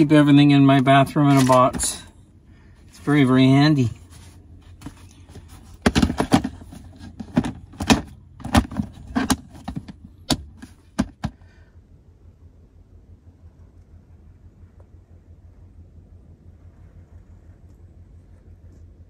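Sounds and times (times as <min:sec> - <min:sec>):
plastic box clacking and rattling: 0:01.3 - 0:01.9, 0:04.8 - 0:11.4.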